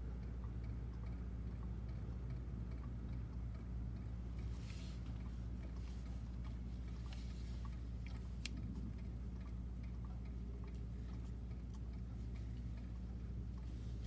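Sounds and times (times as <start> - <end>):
faint ticks and clicks: 0.0 - 14.0
steady low hum: 0.0 - 14.0.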